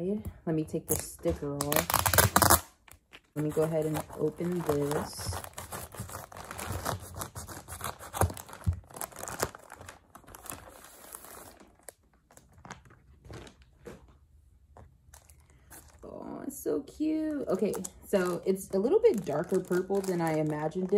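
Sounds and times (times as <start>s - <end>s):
paper crinkling and tearing: 1.5s - 14.2s, 17.5s - 20.9s
scissors cutting paper: 3.4s - 8.7s.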